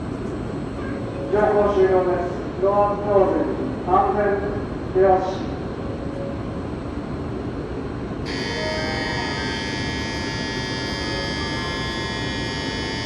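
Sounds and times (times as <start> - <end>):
low hum of train: 0.0 - 13.0
shrill platform buzzer ringing: 8.3 - 13.0.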